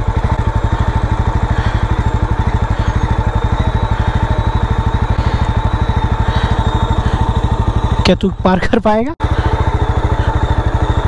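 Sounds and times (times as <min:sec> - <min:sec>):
motorcycle engine running at low revs: 0:00.0 - 0:11.0.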